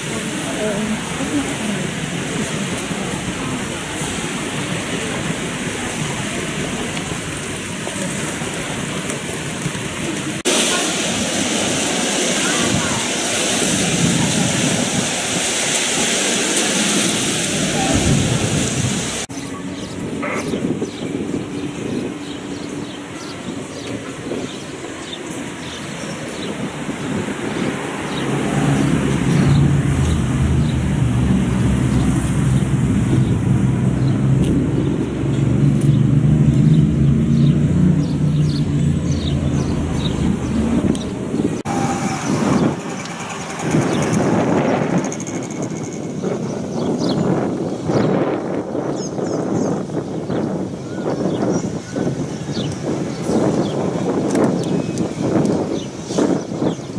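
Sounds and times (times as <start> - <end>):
voices of many bathers: 0.0 - 15.4
small waves breaking: 0.0 - 19.3
wind buffeting microphone: 0.0 - 56.9.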